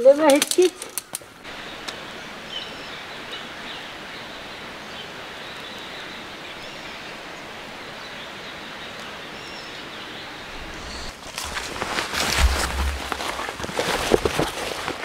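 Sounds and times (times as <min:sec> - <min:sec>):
forest rushing hiss: 0:01.4 - 0:15.0
faint bird chirps: 0:08.0 - 0:11.2.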